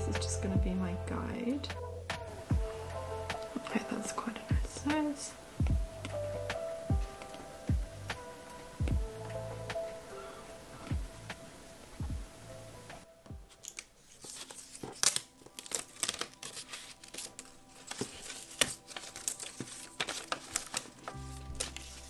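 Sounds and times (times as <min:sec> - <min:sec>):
paper crackling and tearing: 0:13.5 - 0:22.0.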